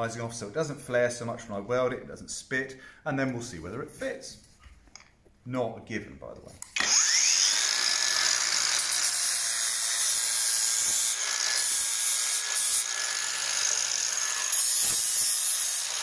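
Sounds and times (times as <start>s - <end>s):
angle grinder grinding metal: 6.7s - 16.0s.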